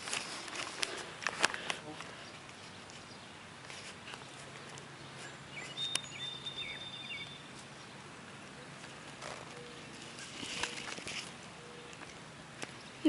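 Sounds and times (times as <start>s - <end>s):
soft rustle: 0.0s - 5.8s, 8.7s - 12.8s
bird whistling and chirping: 5.5s - 7.4s.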